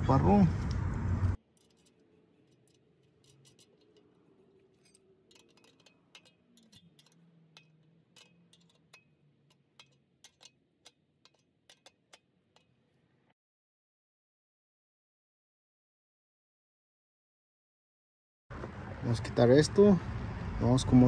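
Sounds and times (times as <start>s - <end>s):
ratcheting wrench clicking: 1.5s - 12.8s.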